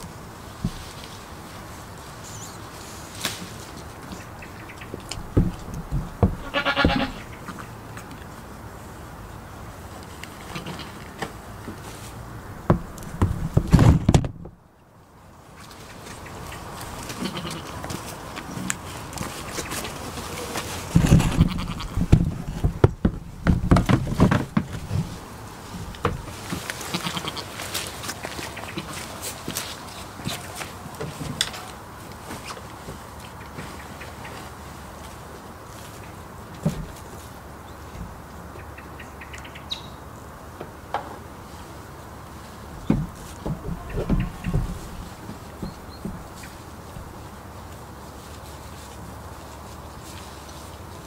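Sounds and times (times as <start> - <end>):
knocks and rustling: 0.0 - 1.6, 3.1 - 8.3, 10.1 - 14.6, 15.6 - 35.3, 36.2 - 38.2, 42.5 - 50.6
dull thumps: 4.9 - 7.2, 12.6 - 14.6, 20.8 - 26.7, 42.8 - 47.1
goat bleating: 6.4 - 7.3, 10.4 - 11.1, 17.1 - 17.9, 21.0 - 22.0, 26.8 - 27.6, 43.5 - 45.1.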